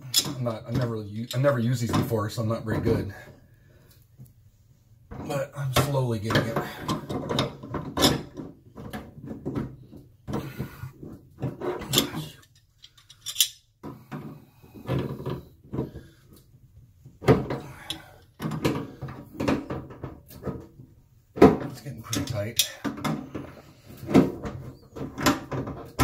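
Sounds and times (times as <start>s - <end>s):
pliers clicking and scraping on metal nut: 11.9s - 13.6s.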